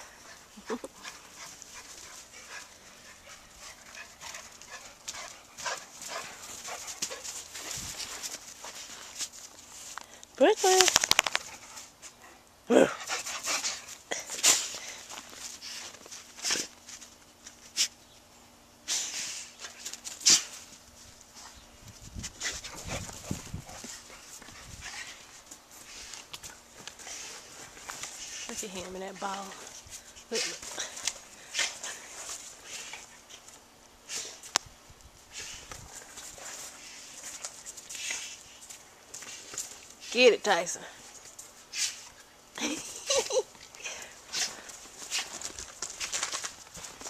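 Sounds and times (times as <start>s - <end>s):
paws crunching in snow: 0.0s - 10.0s, 43.9s - 47.0s
dog snuffling in snow: 18.9s - 20.6s, 24.7s - 26.2s, 35.3s - 38.6s, 41.7s - 42.1s
rustling in snow: 44.1s - 47.0s.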